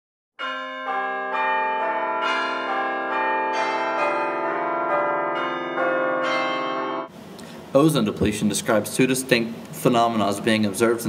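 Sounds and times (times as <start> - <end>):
bells ringing: 0.4 - 7.1.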